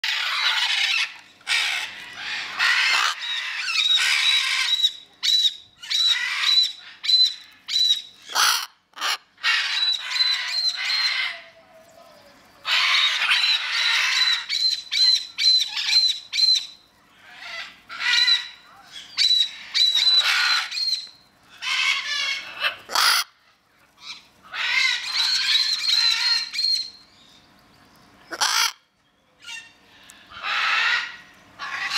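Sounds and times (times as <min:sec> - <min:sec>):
macaws squawking: 0:00.0 - 0:04.9, 0:08.2 - 0:11.5, 0:19.2 - 0:23.4, 0:24.0 - 0:26.8, 0:28.3 - 0:28.8, 0:29.4 - 0:31.9.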